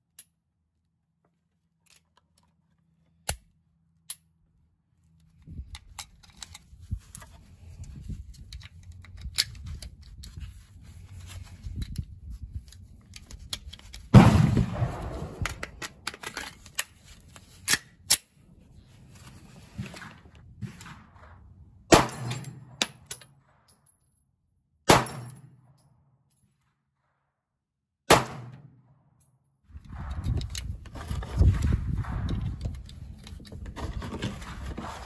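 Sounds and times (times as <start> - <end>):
gun handling clicks: 1.8 - 4.3, 5.2 - 10.4, 11.3 - 14.2, 14.8 - 18.3, 29.8 - 30.8
handgun shots: 24.9 - 25.4, 28.1 - 28.7.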